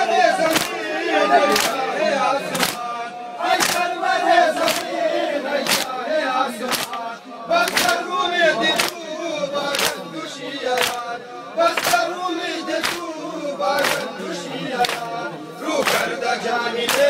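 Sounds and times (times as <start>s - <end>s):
men chanting a lament: 0.0s - 17.0s
men slapping chests: 0.4s - 1.9s, 2.5s - 4.0s, 4.6s - 6.0s, 6.6s - 9.0s, 9.6s - 15.2s, 15.8s - 16.2s, 16.8s - 17.0s.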